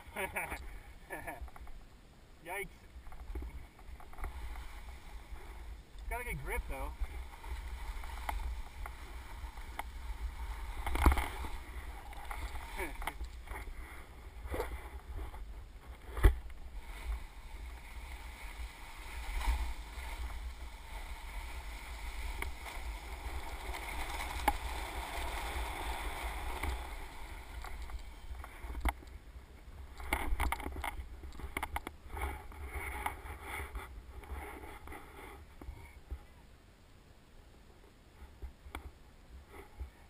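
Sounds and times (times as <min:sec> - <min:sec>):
snow hissing and scraping: 0:00.0 - 0:01.4, 0:03.8 - 0:30.1.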